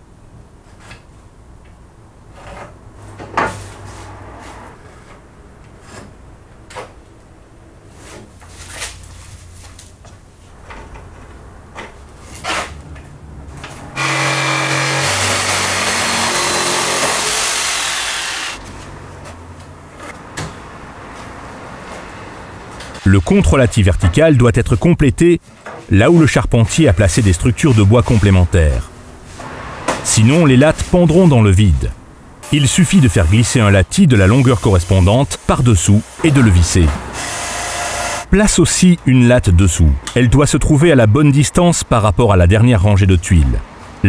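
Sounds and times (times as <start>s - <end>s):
handheld power tool running: 14.0s - 18.6s, 37.2s - 38.3s.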